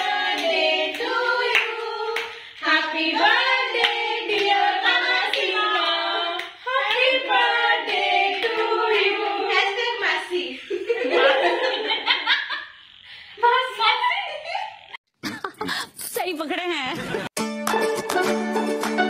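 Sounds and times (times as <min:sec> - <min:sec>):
voices singing together: 0:00.0 - 0:12.2
hand clapping: 0:17.6 - 0:19.0.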